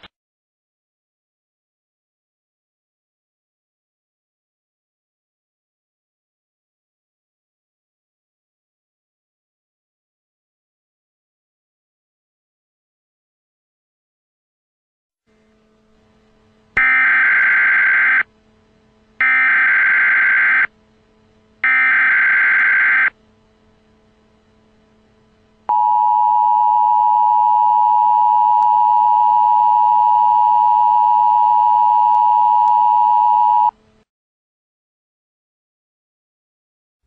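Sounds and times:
screeching digital data bursts: 0:16.8 - 0:18.2, 0:19.2 - 0:20.7, 0:21.6 - 0:23.1
two-tone attention signal: 0:21.6 - 0:23.1, 0:25.7 - 0:33.7.

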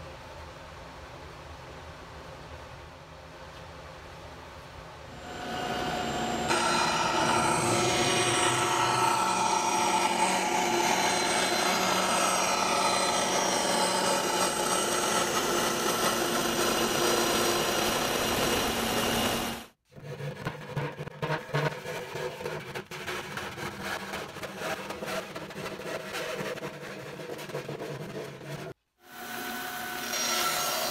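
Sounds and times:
bandsaw cutting wood: 0:05.2 - 0:19.6.

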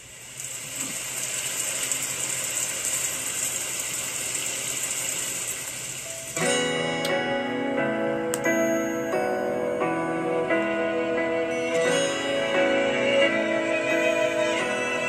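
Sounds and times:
steady hiss: 0:00.0 - 0:15.0
ballad with ringing instrumental notes: 0:06.1 - 0:15.0.

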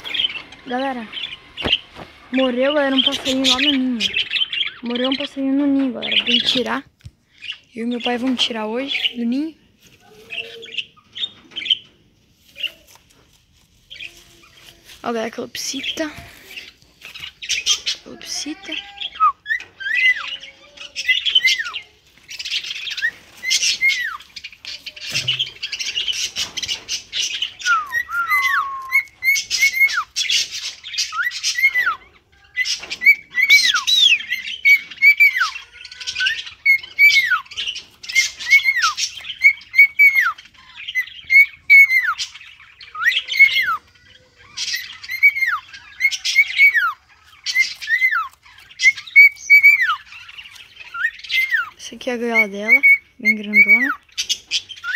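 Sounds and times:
cockatiel whistled calls: 0:27.5 - 0:30.2, 0:44.7 - 0:50.0.

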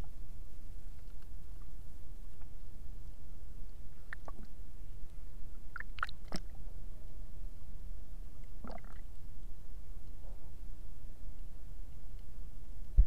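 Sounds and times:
underwater low rumble: 0:00.0 - 0:13.0
clicks and swishes in water: 0:04.0 - 0:06.6.

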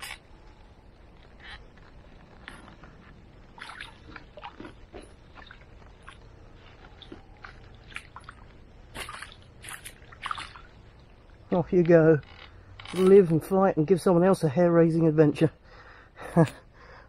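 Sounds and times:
river water splashing: 0:03.3 - 0:11.6.

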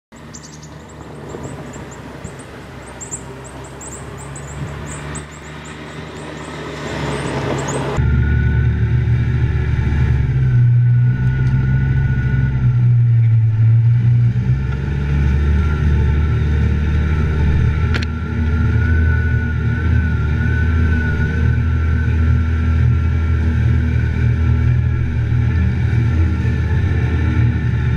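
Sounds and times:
bird chirping: 0:00.1 - 0:08.0
faint engine whine: 0:00.1 - 0:27.9
utility vehicle engine: 0:00.1 - 0:27.9
vehicle driving through water: 0:00.2 - 0:27.9.

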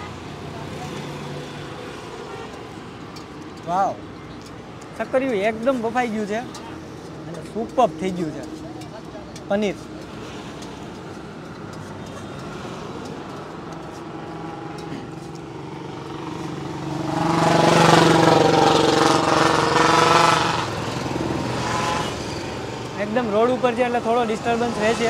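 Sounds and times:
background traffic noise: 0:00.0 - 0:25.0
vehicle passing close by: 0:12.2 - 0:23.6.

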